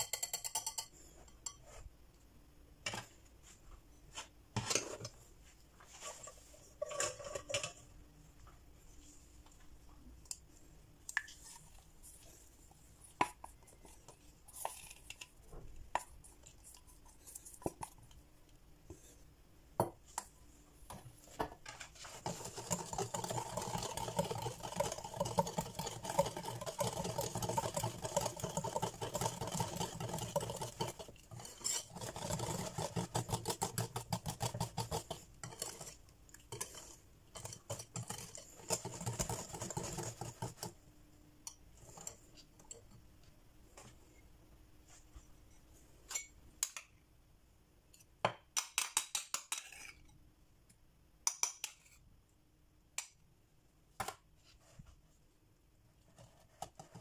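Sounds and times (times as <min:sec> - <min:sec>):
whisk clinking against glass bowl: 0:00.0 - 0:01.6, 0:22.2 - 0:40.6.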